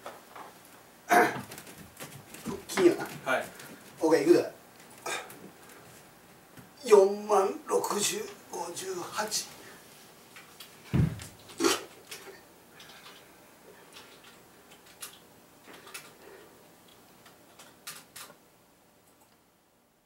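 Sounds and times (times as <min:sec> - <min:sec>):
body thud on floor: 0:10.9 - 0:11.4.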